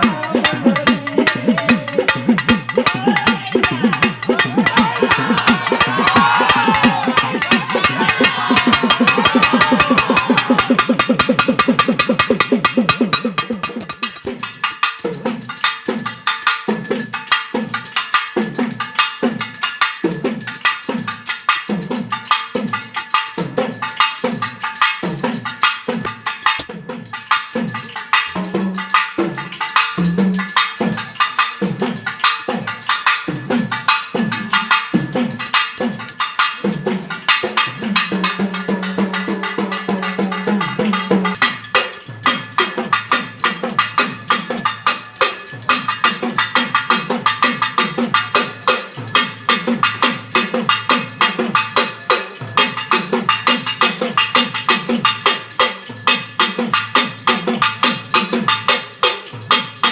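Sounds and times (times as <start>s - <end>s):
jingling tambourine-like percussion: 0.0s - 59.9s
music with drum beat: 0.0s - 59.9s.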